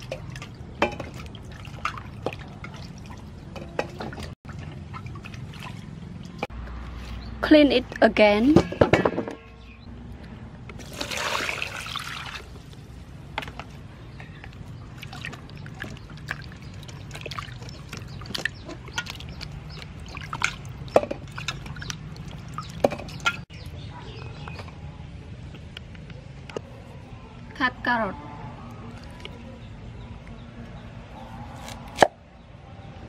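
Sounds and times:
small water splashes: 0.0 - 6.5, 10.8 - 12.8, 14.3 - 23.5
water poured into metal bowl: 10.8 - 12.6.

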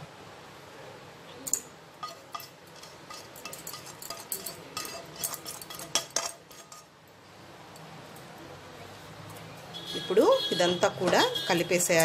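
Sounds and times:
kitchenware clinking against pan: 1.5 - 7.0.

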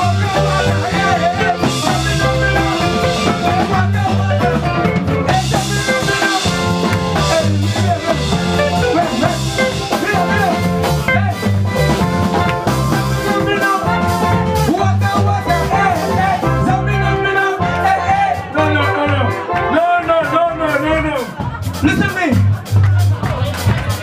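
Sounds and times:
person singing into a microphone: 0.0 - 11.4, 13.2 - 20.6
bass line: 0.0 - 24.0
drum kit: 0.0 - 24.0
electric guitars: 0.0 - 24.0
keyboard: 0.0 - 24.0.

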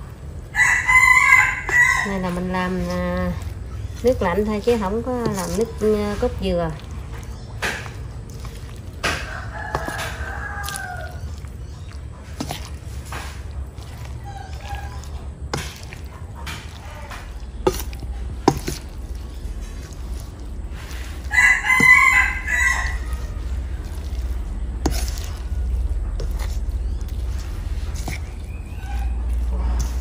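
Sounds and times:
metal spoon stirring batter: 0.0 - 30.0
rooster crowing: 0.5 - 2.3, 9.1 - 11.4, 21.3 - 23.5.

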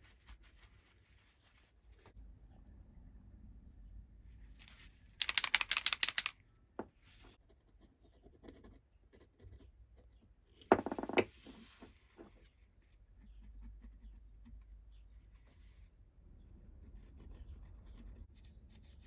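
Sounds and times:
rapid scratchy clicking: 5.2 - 6.3.

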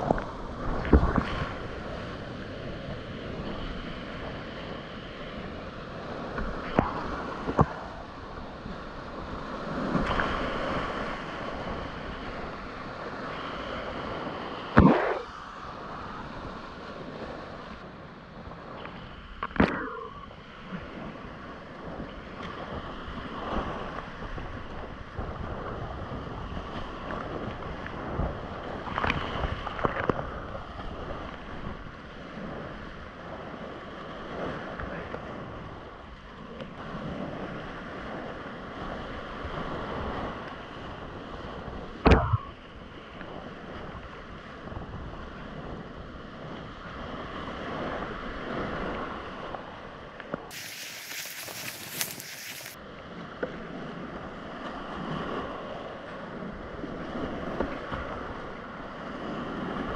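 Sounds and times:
wind on microphone: 0.0 - 59.9
paddle splashes: 50.5 - 52.8.

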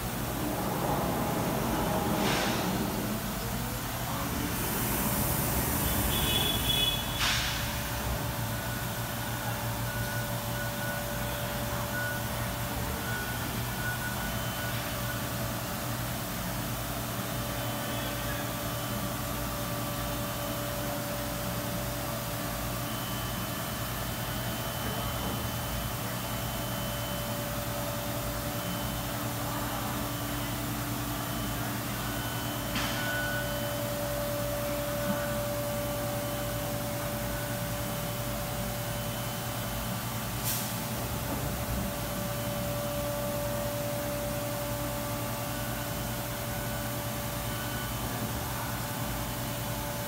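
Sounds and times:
cnc router humming: 0.0 - 7.1
machine whine: 0.0 - 50.0.

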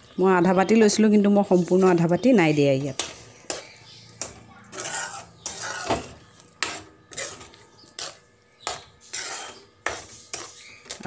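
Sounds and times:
spoon scraping a metal pot: 2.9 - 11.0.

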